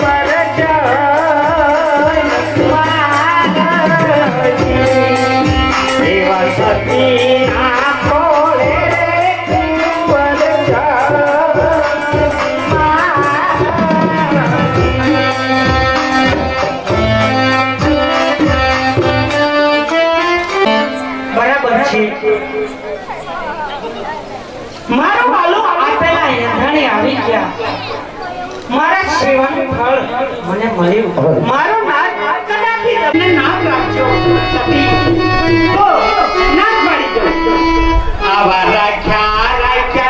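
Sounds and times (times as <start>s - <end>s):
person singing through pa: 0.0s - 19.2s, 33.1s - 40.0s
hand drum rhythm: 0.0s - 20.7s, 33.1s - 40.0s
sustained melodic accompaniment: 0.0s - 24.8s, 31.9s - 40.0s.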